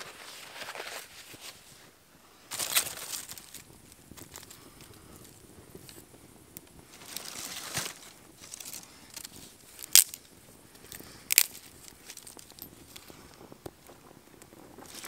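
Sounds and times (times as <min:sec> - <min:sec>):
small crackles: 0:00.0 - 0:15.0
kindling rustling: 0:02.5 - 0:04.6, 0:06.9 - 0:10.2
twigs snapping: 0:06.6 - 0:13.8.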